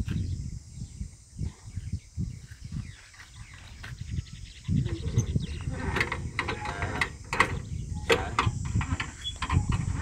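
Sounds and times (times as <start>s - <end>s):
diesel engine rumbling: 4.8s - 10.0s.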